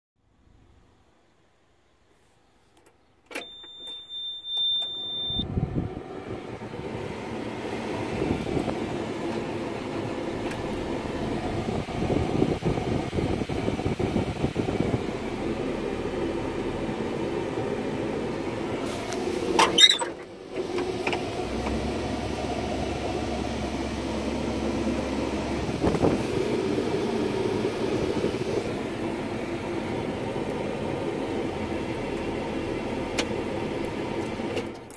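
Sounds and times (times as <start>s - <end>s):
diesel engine starting and idling: 3.3s - 34.9s
high beep: 3.4s - 5.4s.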